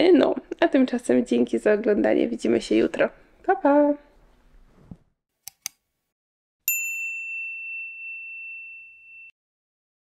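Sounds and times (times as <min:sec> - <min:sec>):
high bell ding: 0:06.7 - 0:09.4.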